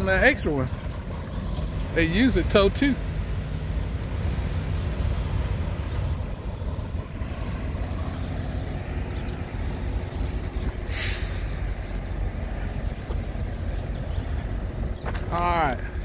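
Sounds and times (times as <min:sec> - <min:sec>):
diesel truck engines rumbling: 0:00.0 - 0:16.0
short hiss: 0:10.9 - 0:11.7.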